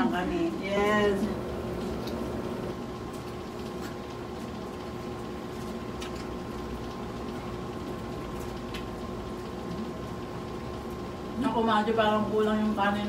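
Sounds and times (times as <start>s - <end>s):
steady background hum: 0.0s - 13.0s
crackles of fried chicken chewed: 1.6s - 11.4s.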